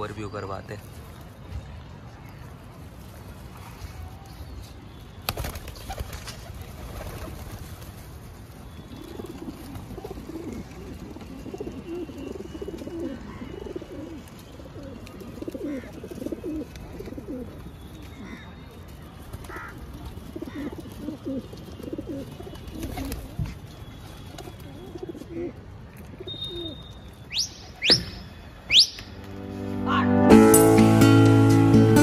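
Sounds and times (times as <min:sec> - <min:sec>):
pigeons cooing: 0:09.0 - 0:17.6, 0:19.5 - 0:23.4.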